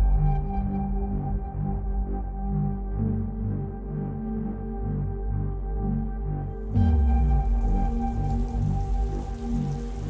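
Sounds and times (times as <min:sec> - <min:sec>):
ambient music with drone: 0:00.0 - 0:10.0.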